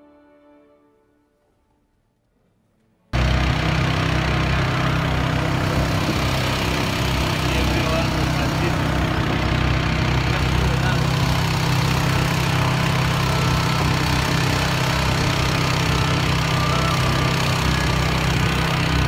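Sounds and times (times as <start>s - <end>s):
outboard motor running: 3.2s - 19.0s.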